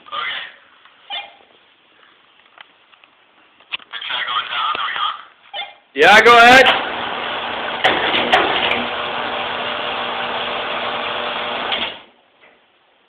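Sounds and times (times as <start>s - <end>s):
contactor arcing: 6.3s - 12.2s
electrical hum and buzz: 6.6s - 12.2s.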